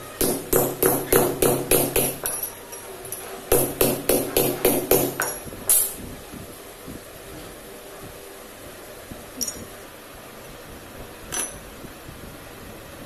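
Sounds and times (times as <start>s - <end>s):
hammer striking metal: 0.2s - 2.8s, 3.5s - 6.0s.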